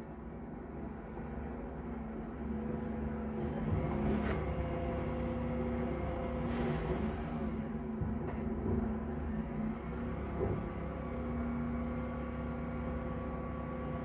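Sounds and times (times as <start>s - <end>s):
air brake hiss: 6.3s - 7.8s.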